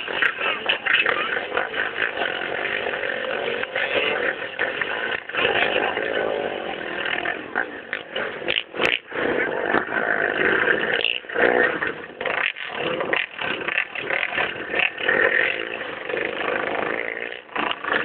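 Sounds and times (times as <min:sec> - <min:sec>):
motocross bike engines revving: 0:00.0 - 0:18.0.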